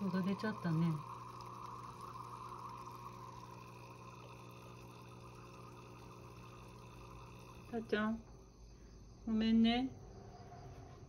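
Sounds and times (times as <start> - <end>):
water trickling: 0.0 - 8.0
low steady hum: 0.0 - 11.0.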